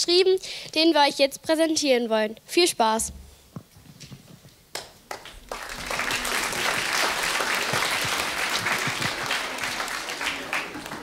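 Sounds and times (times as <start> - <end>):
audience applause: 5.1 - 11.0.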